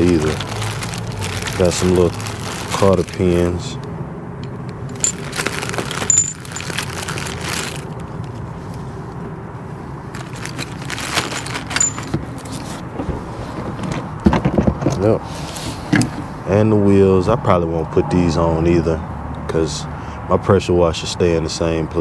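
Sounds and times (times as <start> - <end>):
plastic bags crinkling: 0.0 - 3.8, 4.9 - 8.1, 10.1 - 12.6
metal clips jingling: 4.4 - 7.4, 10.2 - 12.4
rustling in a cardboard box: 5.0 - 8.0, 10.1 - 14.8.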